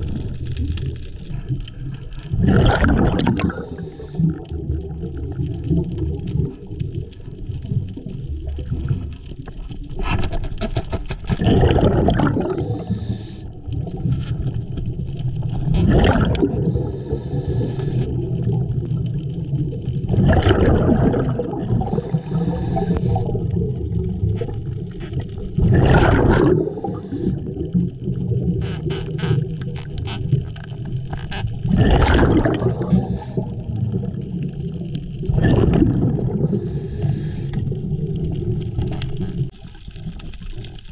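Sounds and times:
low rumble of water: 0:00.0 - 0:40.9
regulator bubbling exhalations: 0:02.2 - 0:06.8, 0:11.2 - 0:14.1, 0:15.5 - 0:29.6, 0:31.6 - 0:39.5.

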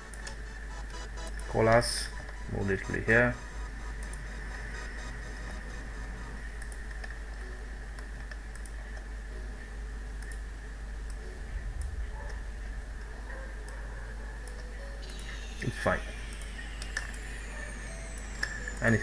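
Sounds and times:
microphone hum with high whine: 0:11.2 - 0:19.0.

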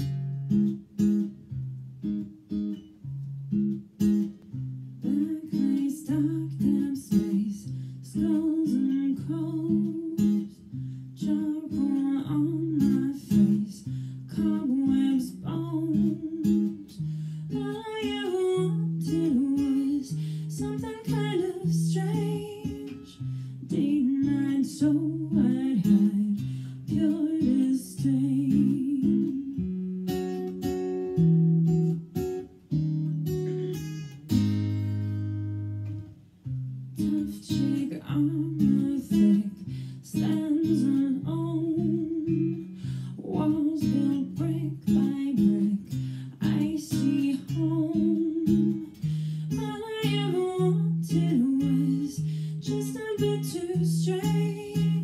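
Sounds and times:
acoustic guitar waltz: 0:00.0 - 0:55.0
woman singing: 0:05.0 - 0:29.8, 0:37.0 - 0:55.0.

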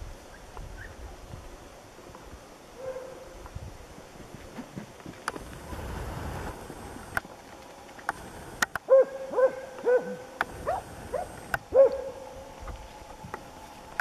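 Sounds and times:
dog barking: 0:02.8 - 0:03.3, 0:08.9 - 0:12.2
sharp clicks: 0:07.9 - 0:08.9, 0:11.2 - 0:12.0.

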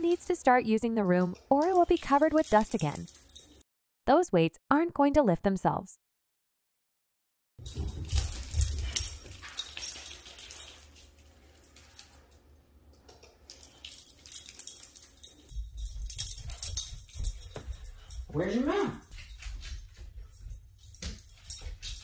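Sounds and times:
puppy moving about: 0:07.6 - 0:12.4, 0:13.4 - 0:22.0.

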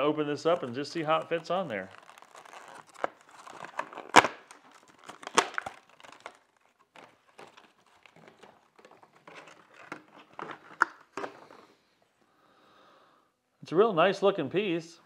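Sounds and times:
plastic packaging crinkling: 0:00.0 - 0:11.7
plastic snaps: 0:01.9 - 0:11.4.

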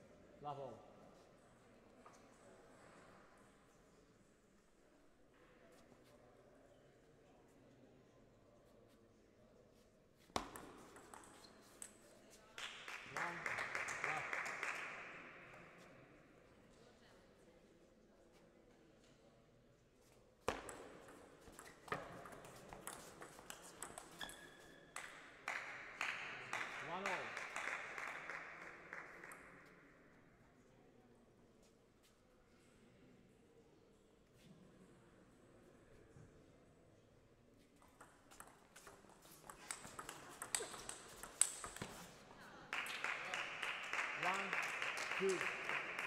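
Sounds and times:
table tennis ball hitting rackets: 0:10.3 - 0:12.1, 0:20.4 - 0:25.8, 0:37.8 - 0:42.2
applause: 0:12.6 - 0:15.6, 0:25.0 - 0:29.7, 0:42.7 - 0:46.0
table tennis ball clicks: 0:37.8 - 0:42.0.

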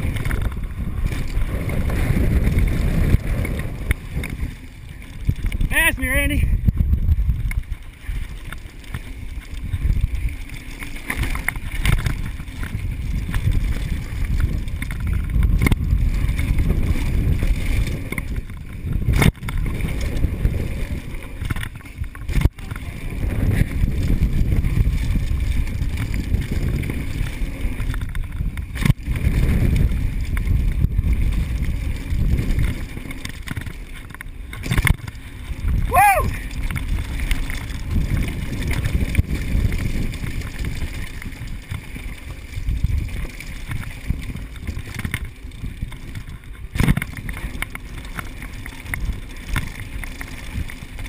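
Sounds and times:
bike knocking on bumps: 0:00.0 - 0:05.9, 0:06.6 - 0:51.0
tyres on dirt: 0:00.0 - 0:06.4, 0:07.2 - 0:51.0
wind rumble on microphone: 0:00.0 - 0:51.0.

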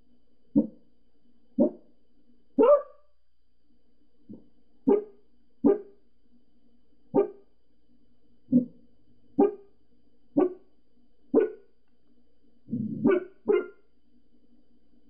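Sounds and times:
dog barking: 0:00.6 - 0:00.8, 0:01.6 - 0:01.9, 0:02.6 - 0:03.1, 0:04.9 - 0:06.0, 0:07.2 - 0:07.5, 0:09.4 - 0:09.7, 0:10.4 - 0:10.7, 0:11.3 - 0:11.7, 0:13.0 - 0:13.8.

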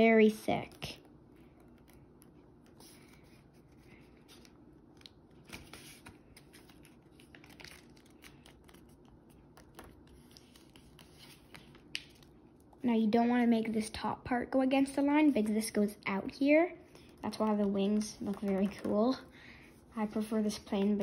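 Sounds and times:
paper rustling and crinkling: 0:01.6 - 0:12.8, 0:16.9 - 0:19.2.

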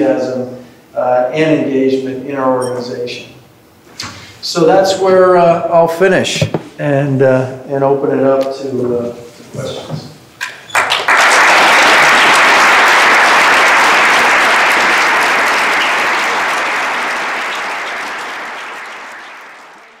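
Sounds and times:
audience applauding: 0:10.7 - 0:20.0.

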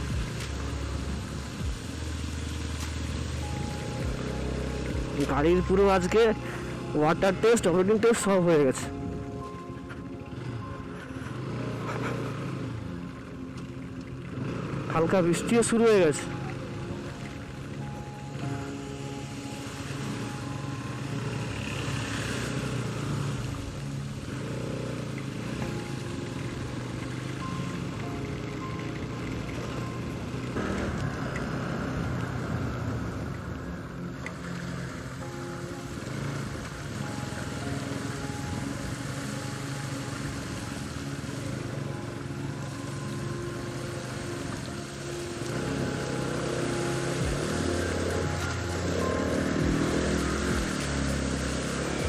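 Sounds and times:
motorcycle engine running: 0:00.0 - 0:52.0
road and wind noise: 0:00.0 - 0:52.0.

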